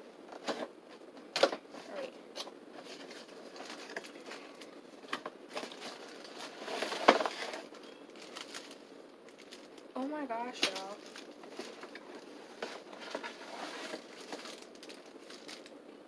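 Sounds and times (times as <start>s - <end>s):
cardboard box being opened: 12.6s - 15.6s.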